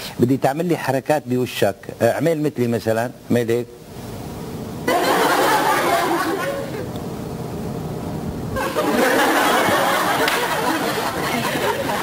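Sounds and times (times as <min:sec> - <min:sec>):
group laughing and chattering: 0:04.8 - 0:06.9, 0:08.6 - 0:12.0.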